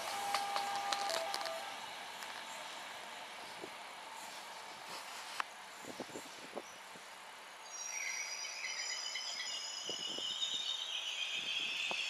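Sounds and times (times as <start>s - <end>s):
train wheels squealing: 0.0s - 1.7s, 7.6s - 12.0s.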